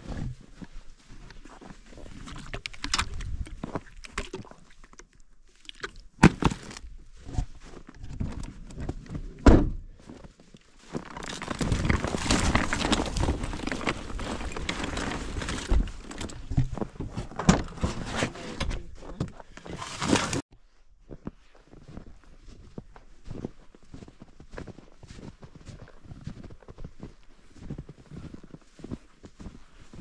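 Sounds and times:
rustling and crunching in snow: 6.5 - 20.4, 21.1 - 30.0.

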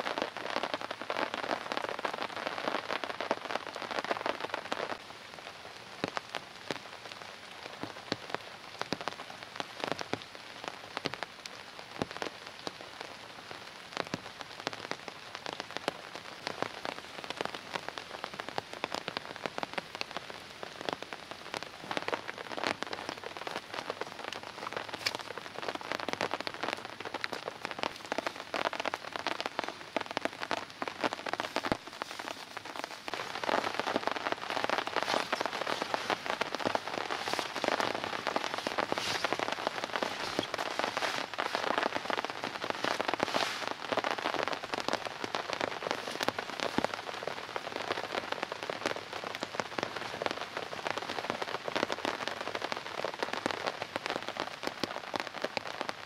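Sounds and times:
raindrops tapping close by: 0.0 - 56.0
steady rain: 0.0 - 56.0.

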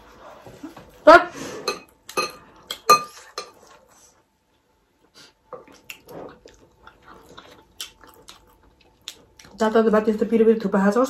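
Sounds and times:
spoons clinking on glass bowls: 1.7 - 3.6.

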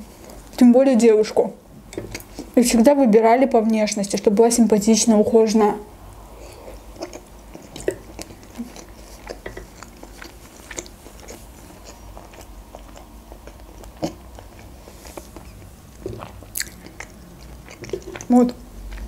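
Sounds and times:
mouth chewing food: 1.9 - 2.7, 6.1 - 19.0.

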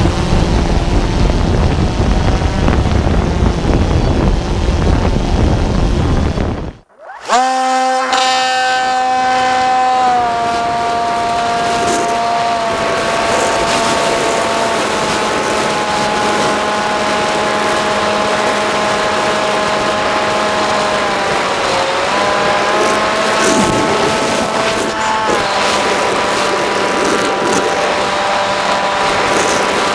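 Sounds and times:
electric motor high whine: 0.0 - 29.9
wind rushing: 21.0 - 29.9.

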